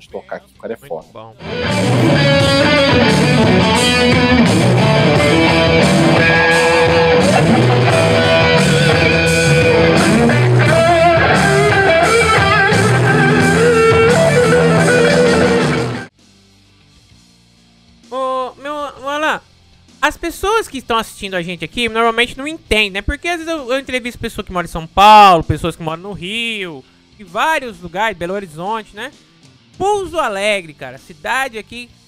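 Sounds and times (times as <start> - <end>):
steady beat: 1.4 - 15.8
electric guitars playing heavy rock: 1.4 - 16.1.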